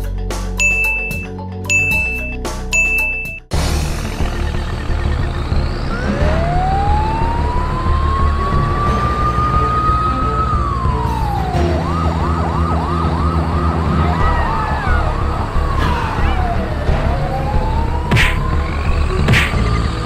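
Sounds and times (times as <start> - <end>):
siren wailing and yelping: 5.9 - 19.7.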